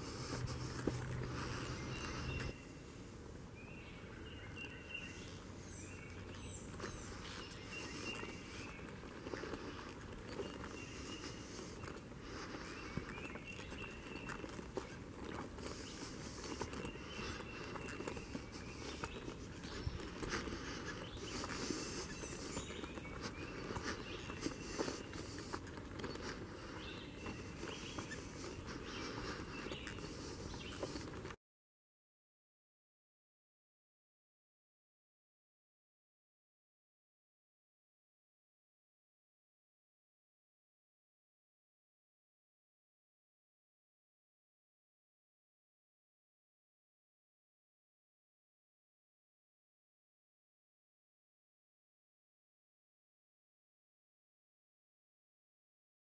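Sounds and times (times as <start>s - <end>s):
footsteps on dirt trail: 0.0s - 2.6s, 4.6s - 31.4s
forest birds calling: 0.0s - 31.3s.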